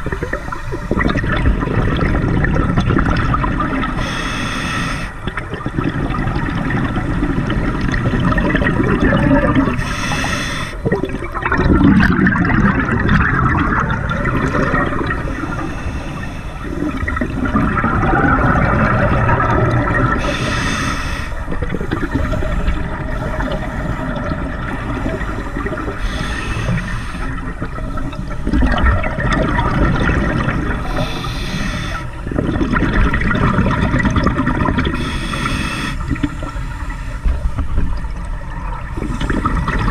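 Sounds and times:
burbling exhaled bubbles: 0.0s - 4.1s, 5.1s - 39.9s
hissing regulator inhales: 4.0s - 5.2s, 9.7s - 10.8s, 15.2s - 17.1s, 20.2s - 24.3s, 25.2s - 27.5s, 30.8s - 32.2s, 35.0s - 37.6s.

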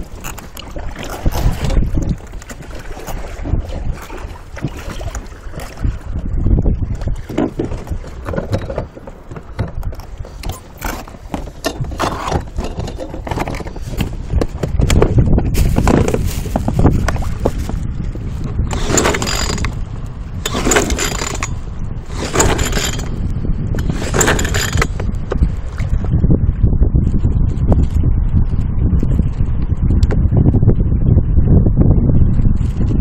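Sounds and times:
pull-starter whirr: 18.7s - 19.8s, 20.4s - 23.2s, 23.8s - 24.9s.

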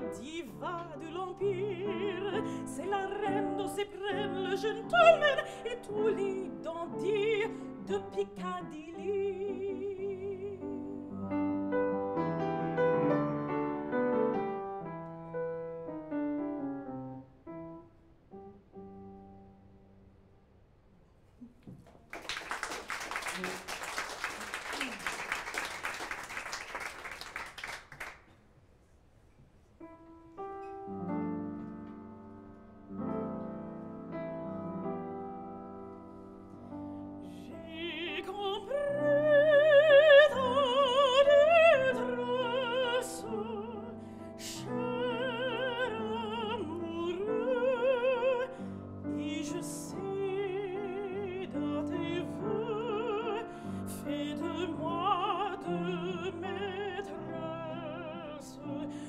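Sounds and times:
woman singing with vibrato: 0.0s - 11.1s, 37.4s - 59.0s
piano: 0.0s - 59.0s
audience applause: 22.0s - 28.3s.

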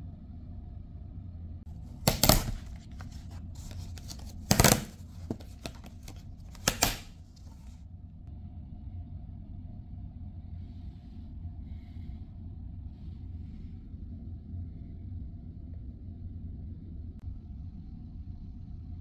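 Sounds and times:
low rumble: 0.0s - 6.5s, 7.2s - 19.0s
plastic packaging crackling and tearing: 1.9s - 7.7s.

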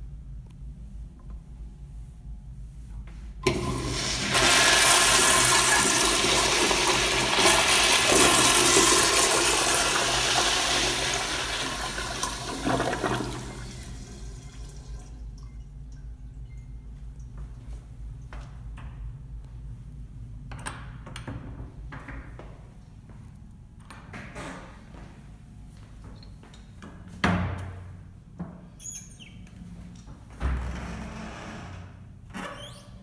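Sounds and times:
toilet flushing: 3.4s - 15.6s.

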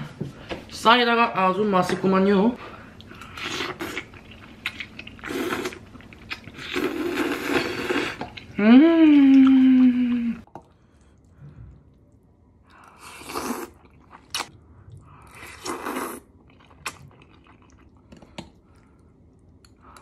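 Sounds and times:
person slurping spaghetti: 5.2s - 5.8s, 6.5s - 8.4s, 12.9s - 14.5s, 15.2s - 17.8s.

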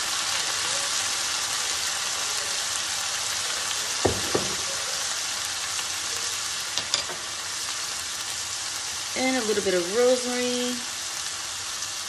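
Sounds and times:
carrots sizzling in a pan: 0.0s - 12.0s
sharp knocks: 4.1s - 4.7s.

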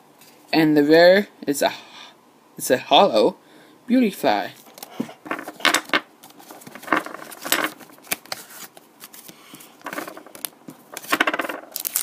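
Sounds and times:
cards rustling and scraping: 4.6s - 12.0s.

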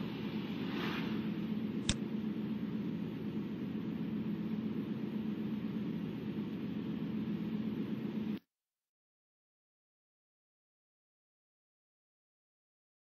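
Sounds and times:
sharp click: 1.8s - 2.0s.

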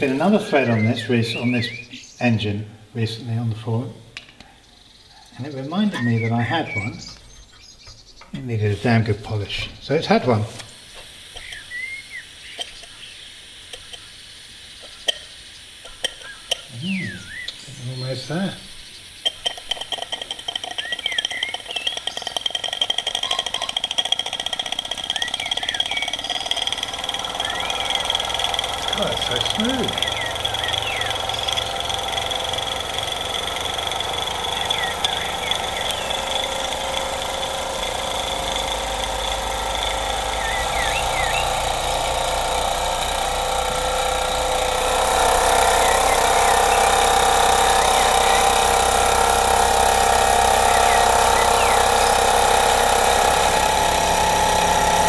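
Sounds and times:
model steam engine running: 0.0s - 1.9s, 16.8s - 55.0s
squeaky chirp: 5.1s - 8.4s, 16.2s - 31.6s, 39.8s - 41.8s, 50.6s - 52.1s
sharp clicks: 19.1s - 55.0s.

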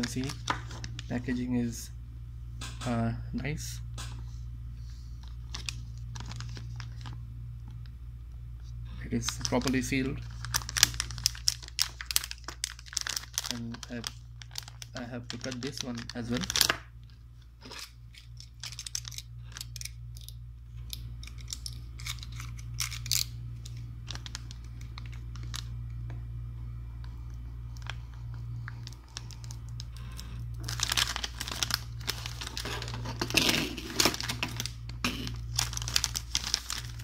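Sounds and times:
foil bag crinkling and tearing: 0.0s - 1.4s, 5.2s - 7.2s, 9.1s - 16.9s, 17.6s - 20.3s, 21.2s - 25.7s, 27.7s - 37.0s
steady low hum: 0.0s - 37.0s.

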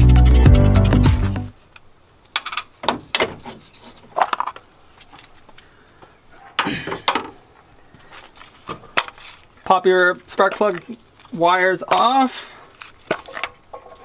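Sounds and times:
music: 0.0s - 1.5s
metal clicks and clunks: 2.3s - 3.6s.

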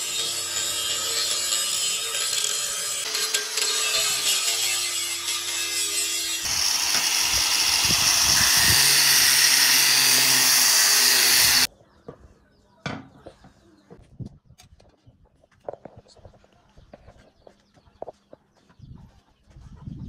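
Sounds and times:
angle grinder grinding metal: 0.0s - 11.7s.

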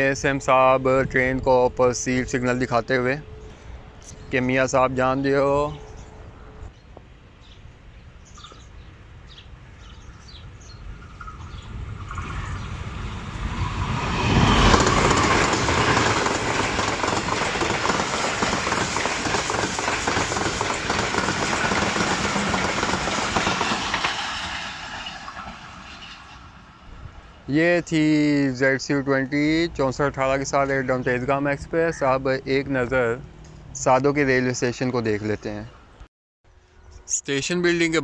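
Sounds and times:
locomotive passing: 10.8s - 34.8s
train wheels rumbling on rails: 11.0s - 27.0s.

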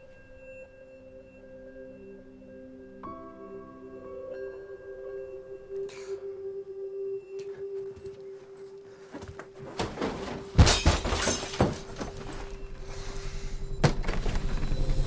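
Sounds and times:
glass shattering crash: 10.0s - 12.7s.

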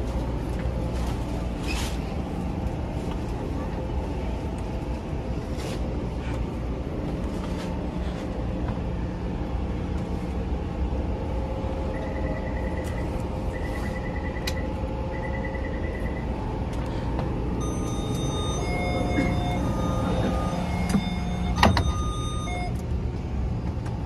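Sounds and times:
train interior rumble: 0.0s - 24.0s
electronic chime tone: 17.6s - 22.8s.

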